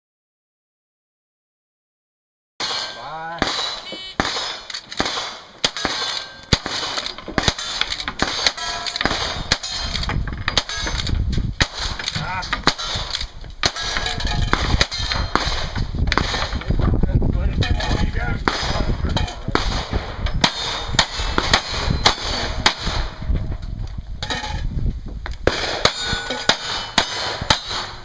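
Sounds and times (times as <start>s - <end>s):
steel targets clanging: 2.6s - 11.2s, 11.8s - 15.5s, 17.6s - 19.4s, 20.2s - 24.7s, 25.5s - 28.0s
gunshots: 2.6s - 16.8s, 17.8s - 23.3s, 25.4s - 28.0s
wind rumble on microphone: 9.0s - 26.3s.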